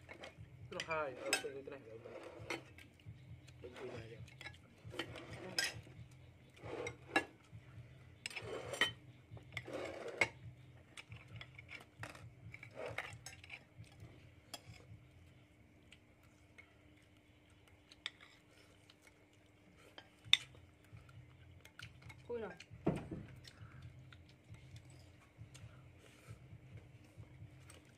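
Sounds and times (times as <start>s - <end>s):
cutlery scraping plates: 0.1s - 2.8s, 3.7s - 6.0s, 6.6s - 7.4s, 8.2s - 10.4s.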